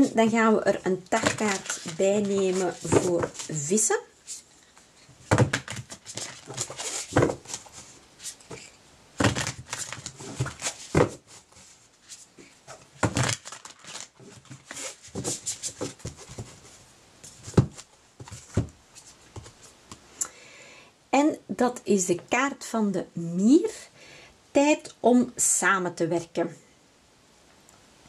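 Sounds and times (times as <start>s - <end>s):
cards being shuffled: 1.2s - 3.6s, 5.4s - 12.2s.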